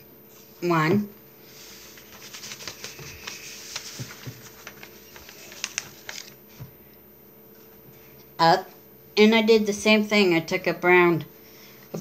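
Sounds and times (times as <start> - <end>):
paper rustling: 1.4 - 6.8.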